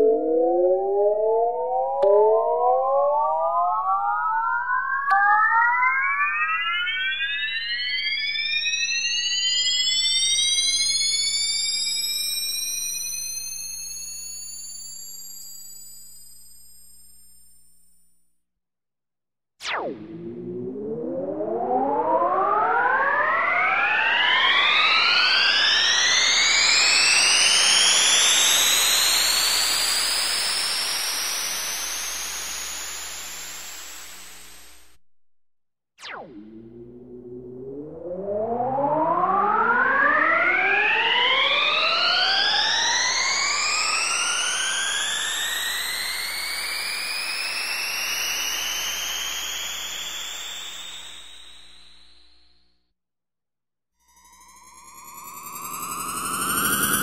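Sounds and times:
rising synthesized tones: 19.6s - 29.5s, 54.2s - 57.0s
synthesized spaceship take-off: 19.6s - 34.8s, 36.0s - 52.1s, 54.2s - 57.0s.

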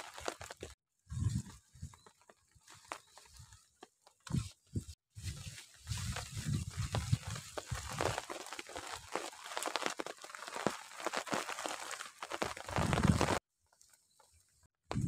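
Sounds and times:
wood fire crackling: 0.0s - 0.8s, 6.2s - 13.9s.

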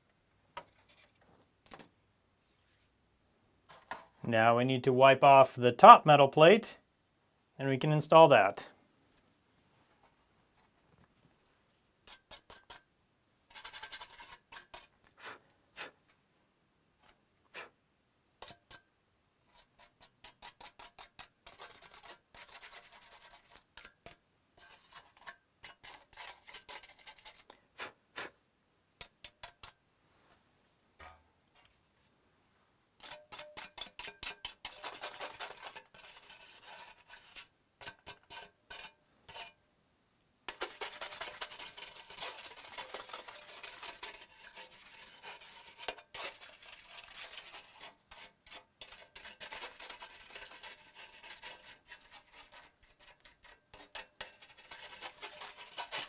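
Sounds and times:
scrubbing strokes on metal: 13.5s - 14.9s, 18.4s - 27.5s, 33.0s - 39.6s, 40.5s - 56.0s.

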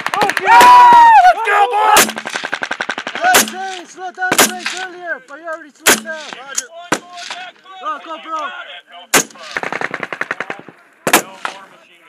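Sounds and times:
machine-gun fire: 0.0s - 0.6s, 2.0s - 4.8s, 9.2s - 11.6s
single gunshots: 3.1s - 4.8s, 5.8s - 7.4s.

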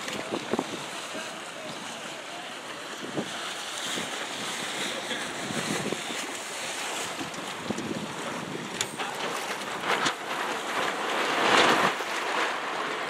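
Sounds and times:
wind blowing across microphone: 0.0s - 1.8s, 3.0s - 6.4s, 7.0s - 12.4s.

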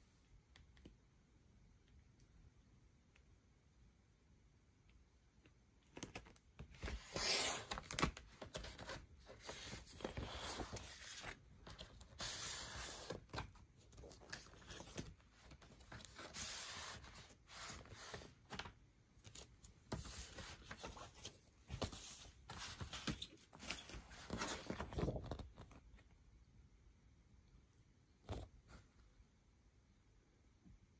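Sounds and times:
paper and card rustling: 5.9s - 25.8s.

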